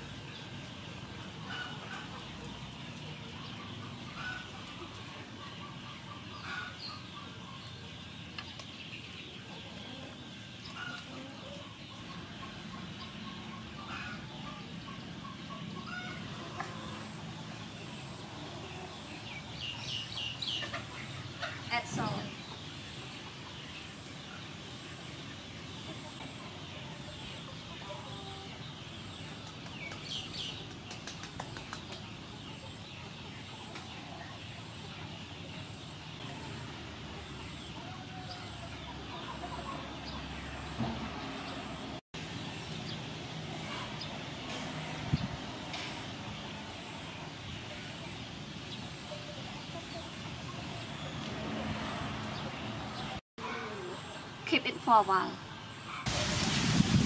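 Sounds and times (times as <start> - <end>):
outdoor background hum: 0.0 - 56.1
background hiss: 56.0 - 57.0.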